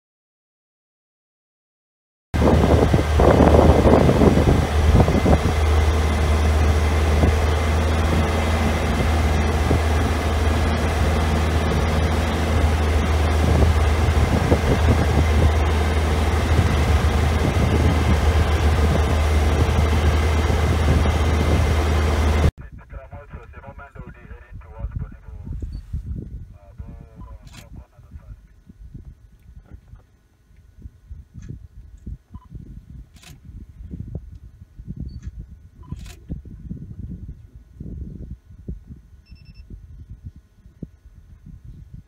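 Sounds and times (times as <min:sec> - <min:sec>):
road noise: 0:02.4 - 0:22.5
vehicle engine hum: 0:02.4 - 0:22.5.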